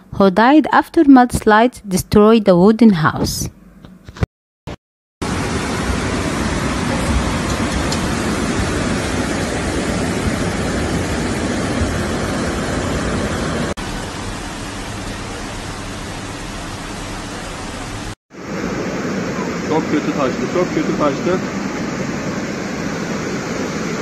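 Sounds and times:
flood water rushing: 0:05.2 - 0:24.0.

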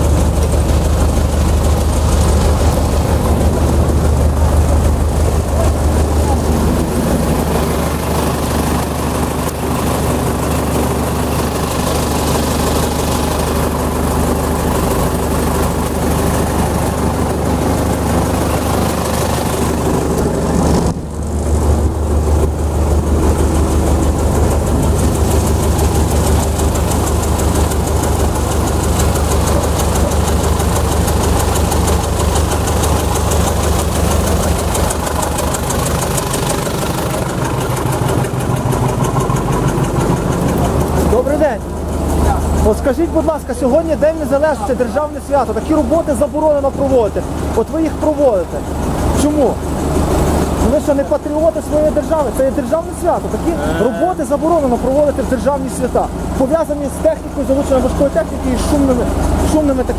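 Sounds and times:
construction machine engine running: 0:00.0 - 0:59.9.

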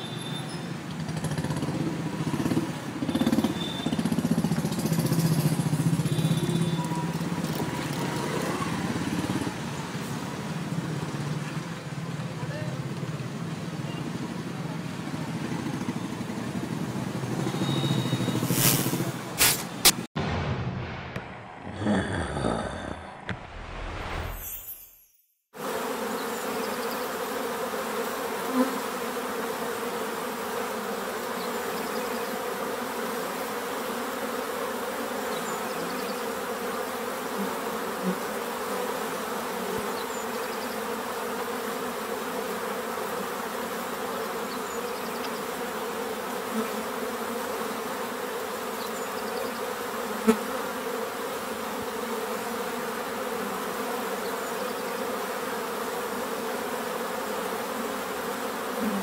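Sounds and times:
insect-like buzzing drone: 0:00.0 - 0:09.8, 0:25.6 - 0:59.0.

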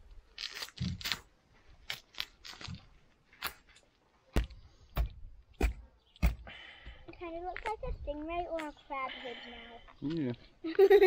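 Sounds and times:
blade crunching through bone: 0:00.4 - 0:02.8
hatchet chopping thumps: 0:04.3 - 0:06.5.

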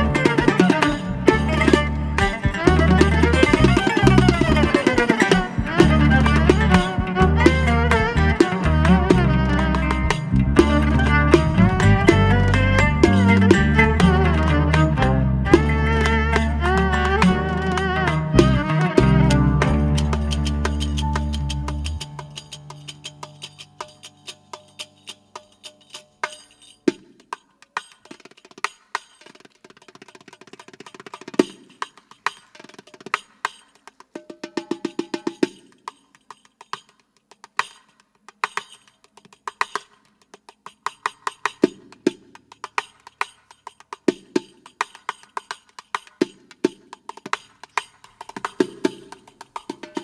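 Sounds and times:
frame tambourine playing: 0:18.1 - 0:29.5.

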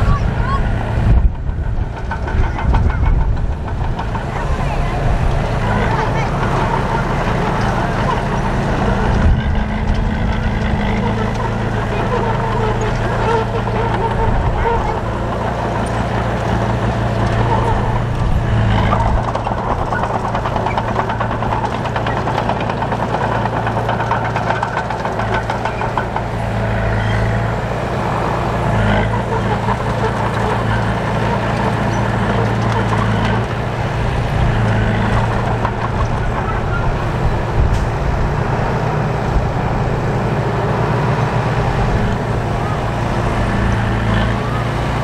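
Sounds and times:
diesel machinery engine drone: 0:00.0 - 0:45.0
rattling clatter: 0:01.0 - 0:44.5.

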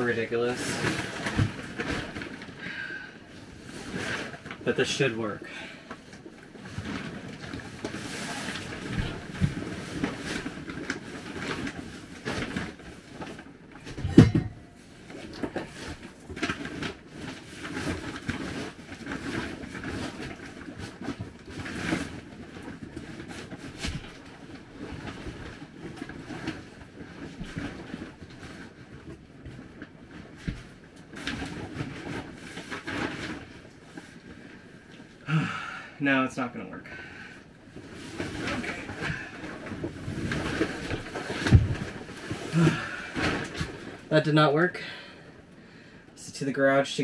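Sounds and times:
item scraping and rattling in compartment: 0:06.7 - 0:24.2, 0:37.8 - 0:44.1
clunks: 0:13.9 - 0:14.8
loud thump: 0:14.0 - 0:14.6.

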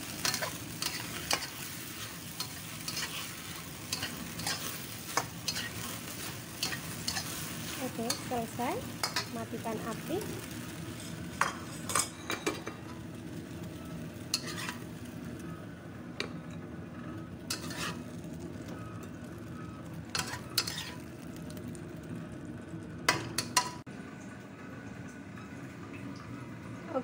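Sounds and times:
faint sizzle: 0:00.0 - 0:27.0
spatula scraping and clinking pan: 0:00.2 - 0:09.3, 0:14.3 - 0:14.8, 0:17.5 - 0:18.0, 0:20.1 - 0:21.0.

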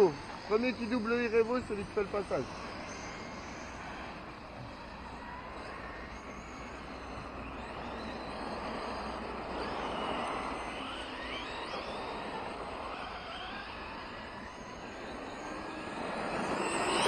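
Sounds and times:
rc truck motors whining: 0:00.0 - 0:17.0
steady rushing noise: 0:00.0 - 0:17.0.

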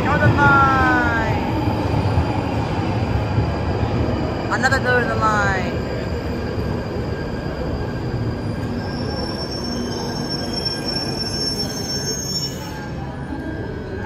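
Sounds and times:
train rumbling into platform: 0:00.0 - 0:14.0
thin high brake squeal: 0:08.5 - 0:13.2.

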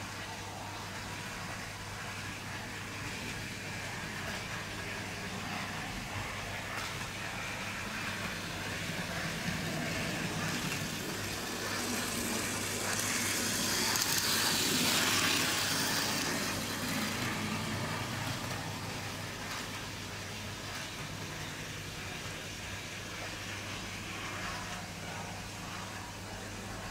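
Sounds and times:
model train motor whirring: 0:02.1 - 0:21.4.

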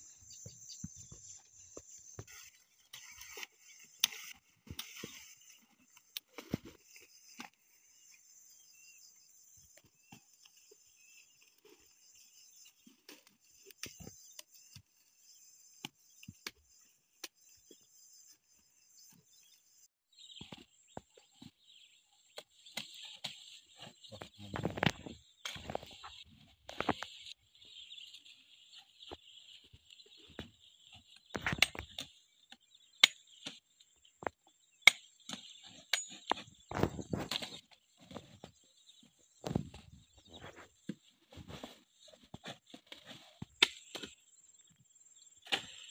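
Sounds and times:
machete chopping woody stalks: 0:43.5 - 0:44.2, 0:45.4 - 0:45.9.

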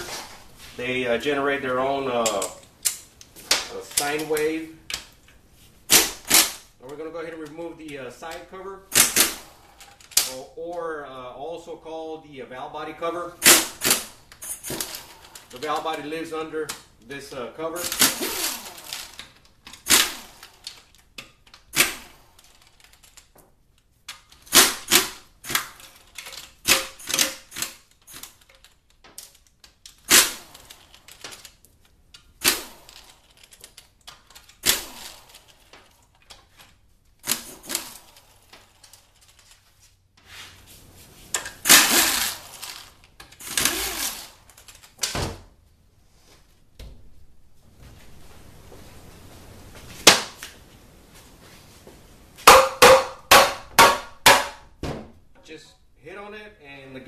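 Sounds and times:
cordless ratchet spinning: 0:41.5 - 0:44.9.

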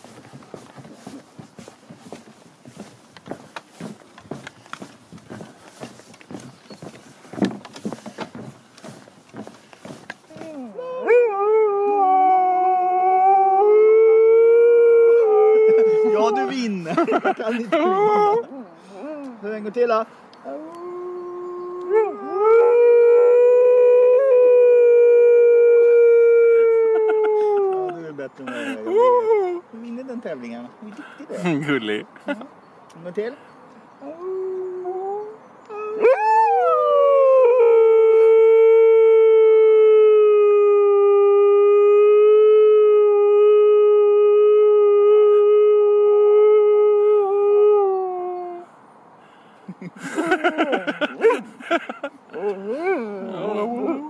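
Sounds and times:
dog howling: 0:10.5 - 0:16.5, 0:20.5 - 0:27.0, 0:34.0 - 0:48.6.

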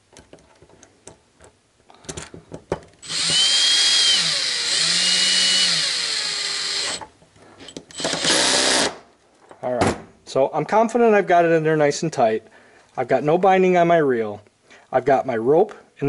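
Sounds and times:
cordless drill whining: 0:03.0 - 0:07.0, 0:07.9 - 0:09.0.

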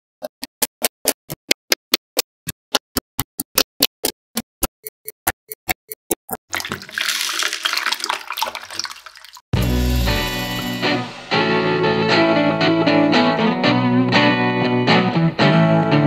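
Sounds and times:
water pouring into fish tank: 0:06.5 - 0:09.5.

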